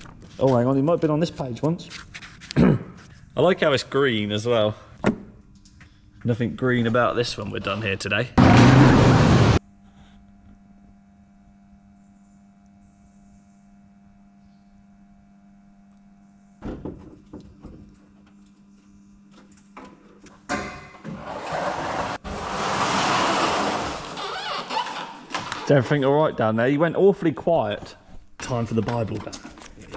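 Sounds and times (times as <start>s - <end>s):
loud burst: 8.4s - 9.6s
faint steady hum: 9.3s - 21.0s.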